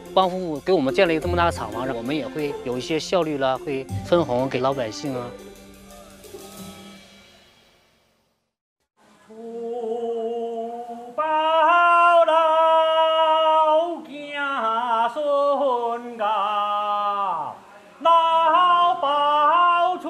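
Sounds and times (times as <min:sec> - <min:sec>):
music: 0:00.0 - 0:08.6
person singing slow song: 0:01.2 - 0:07.0, 0:09.0 - 0:20.0.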